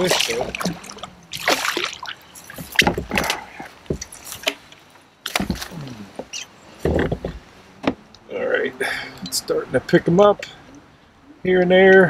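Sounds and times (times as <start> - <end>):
water splashing: 0.0 - 8.1
knocks in a kayak: 2.6 - 4.1.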